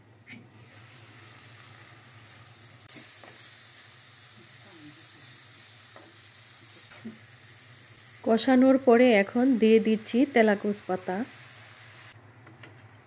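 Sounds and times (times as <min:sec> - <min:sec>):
fish frying in oil: 0:00.6 - 0:12.2.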